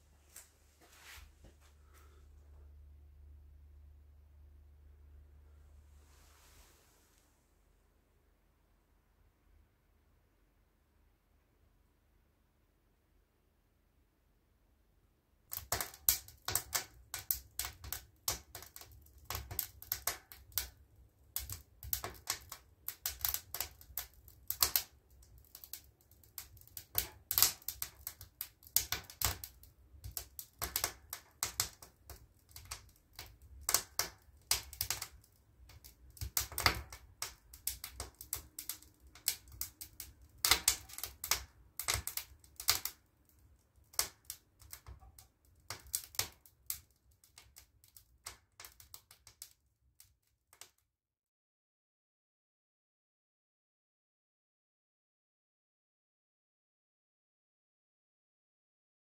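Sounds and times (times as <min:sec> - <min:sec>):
wood fire crackling in stove: 0:15.5 - 0:49.6.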